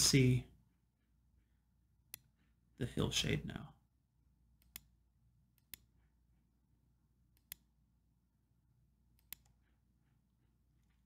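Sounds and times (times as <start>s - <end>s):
computer mouse clicks: 2.1s - 2.4s, 4.6s - 6.1s, 7.3s - 7.7s, 9.1s - 9.8s.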